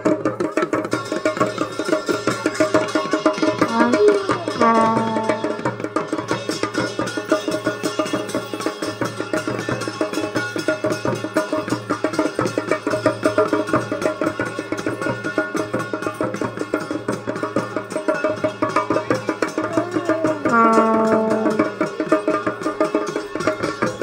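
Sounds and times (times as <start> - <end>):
fast traditional drumming: 0.0 - 24.0
other instruments: 0.0 - 24.0
held note: 3.6 - 5.9, 19.7 - 22.4.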